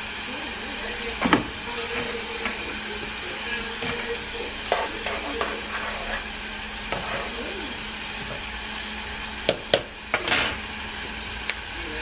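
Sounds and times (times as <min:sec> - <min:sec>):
gravy bubbling and sizzling: 0:00.0 - 0:12.0
utensil knocking against pan: 0:09.5 - 0:09.9.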